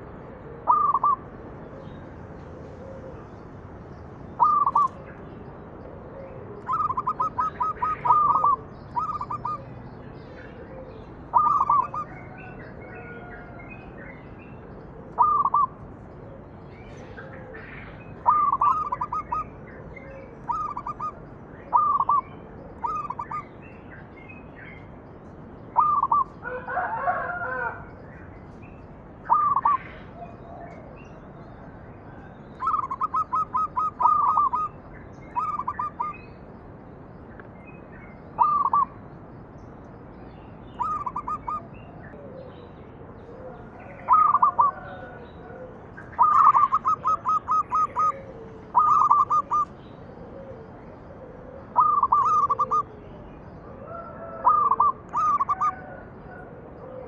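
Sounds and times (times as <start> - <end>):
dove cooing: 0.0 - 3.4, 4.4 - 5.0, 6.0 - 13.6, 15.0 - 23.5, 25.8 - 27.9, 29.3 - 31.0, 32.1 - 36.2, 38.4 - 38.9, 40.8 - 57.0
harsh bird call: 46.1 - 49.7, 51.8 - 52.9.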